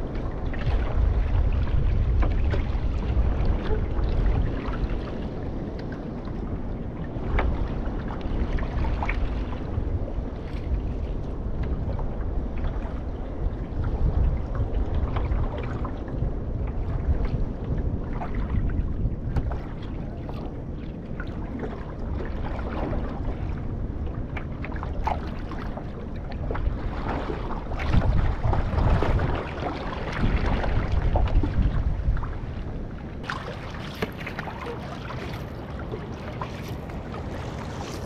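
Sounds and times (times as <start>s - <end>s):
water sloshing around canoe hull: 0.0s - 38.0s
wind buffeting microphone: 0.0s - 38.0s.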